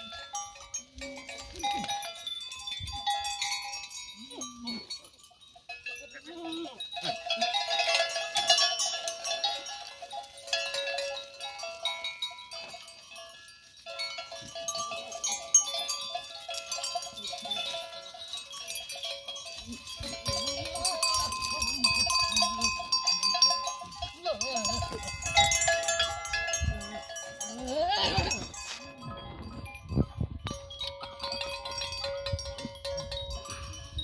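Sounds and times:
steady ringing tones: 0:00.0 - 0:34.0
goats bleating: 0:27.4 - 0:28.6.

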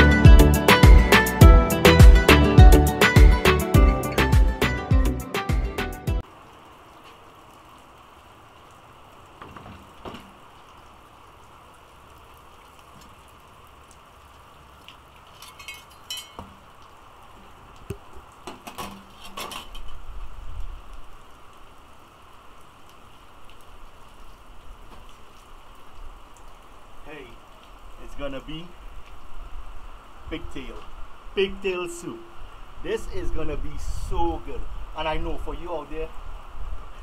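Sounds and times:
steady rain falling: 0:06.2 - 0:37.0.

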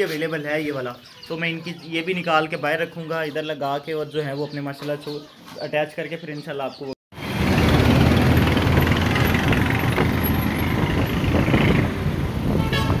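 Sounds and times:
road traffic noise: 0:07.1 - 0:13.0
motorcycle engine: 0:07.2 - 0:13.0
horn toot: 0:12.5 - 0:13.0.

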